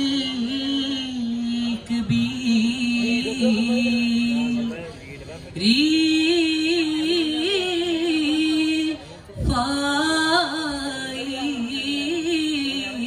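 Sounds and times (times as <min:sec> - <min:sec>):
amplified person singing: 0:00.0 - 0:13.0.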